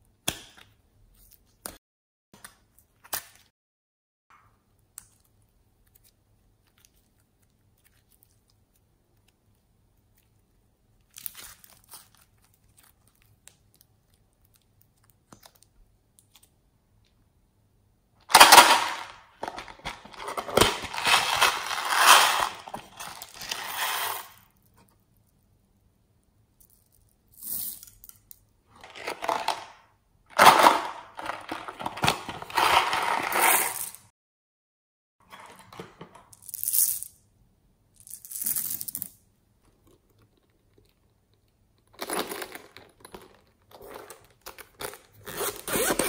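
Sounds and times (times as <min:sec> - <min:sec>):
plastic beads clattering: 0:18.3 - 0:24.4, 0:28.8 - 0:29.7, 0:30.3 - 0:34.0
cardboard box tearing and crinkling: 0:19.8 - 0:23.8.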